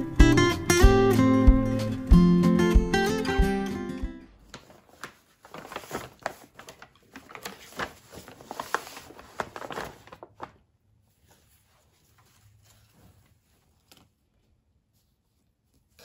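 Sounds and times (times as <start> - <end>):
fabric handling: 4.3 - 16.0
paper bag rustling and crinkling: 4.4 - 14.2.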